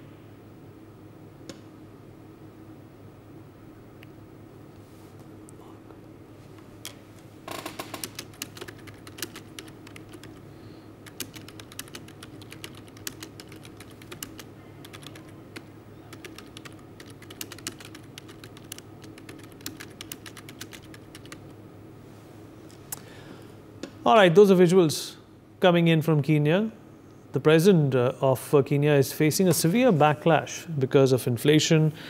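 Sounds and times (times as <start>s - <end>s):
low steady hum: 0.0s - 32.0s
computer keyboard typing: 7.6s - 10.4s, 11.0s - 21.5s.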